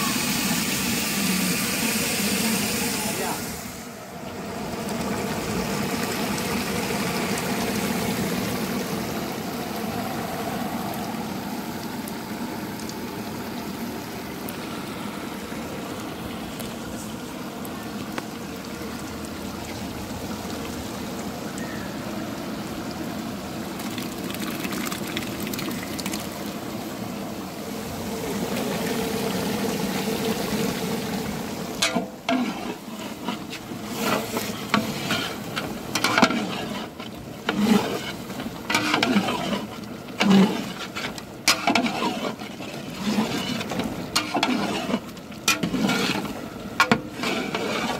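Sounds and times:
gravy boiling and bubbling: 0.0s - 47.9s
ladle knocking and scraping pot: 31.8s - 47.9s.

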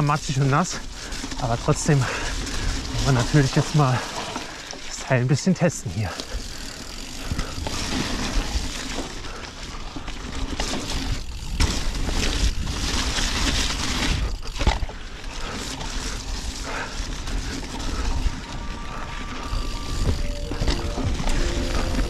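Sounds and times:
bike tyres rolling over mud: 0.0s - 22.0s
bike knocking over bumps: 10.4s - 14.9s
wind rumbling on microphone: 17.2s - 22.0s.

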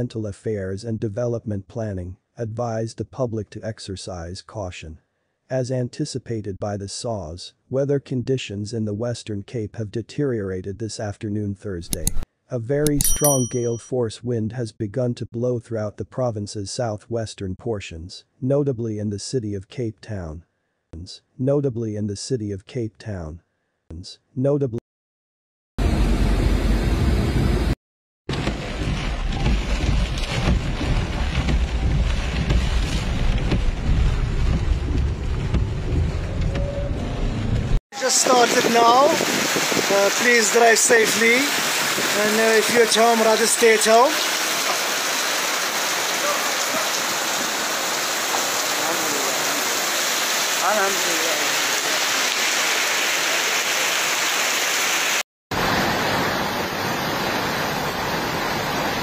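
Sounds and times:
heavy rain: 28.3s - 36.6s, 38.0s - 59.0s
wind rumbling on microphone: 28.4s - 40.3s, 41.0s - 42.8s
rushing water: 38.0s - 59.0s.

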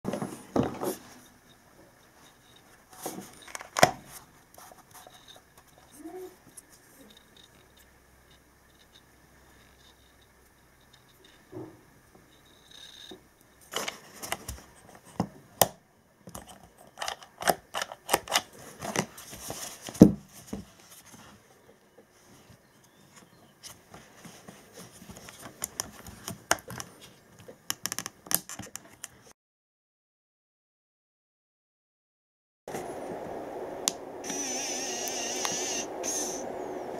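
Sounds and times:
plastic parts clicking and tapping: 13.0s - 19.1s, 25.0s - 29.2s.

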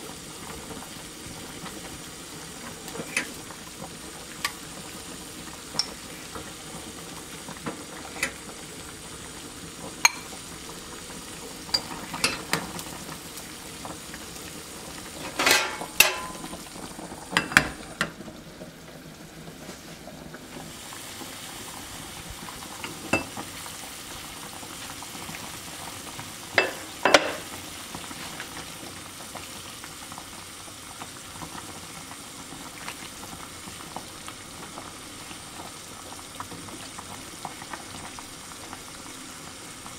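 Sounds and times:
broth boiling in a pot: 0.0s - 39.9s
glass lid clanking on pot: 5.8s - 6.0s, 10.0s - 10.3s, 11.7s - 12.6s, 15.2s - 16.5s, 22.8s - 23.4s, 26.6s - 27.5s
metal ladle clinking on pot: 10.1s - 10.3s, 15.2s - 16.5s, 26.6s - 27.4s.

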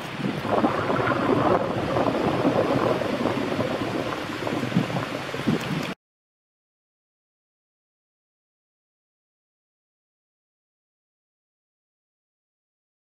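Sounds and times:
wind buffeting microphone: 0.0s - 6.0s.

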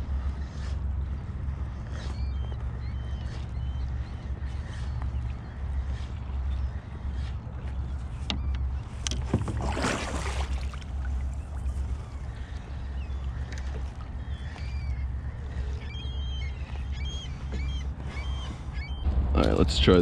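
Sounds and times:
seabirds calling: 0.0s - 20.0s
wind rumble on microphone: 0.0s - 20.0s
water splash: 9.2s - 11.7s.

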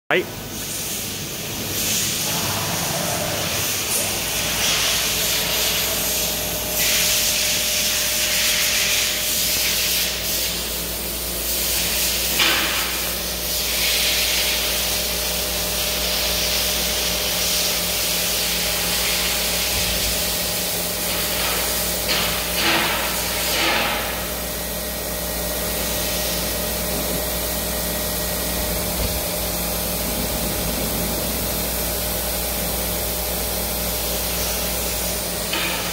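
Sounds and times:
machine hum: 18.7s - 35.9s.

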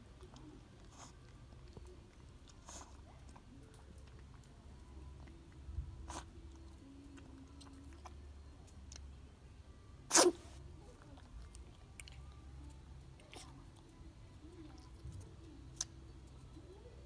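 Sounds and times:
dog chewing dry kibble: 0.0s - 9.0s
puppy sneezing: 10.1s - 10.6s.

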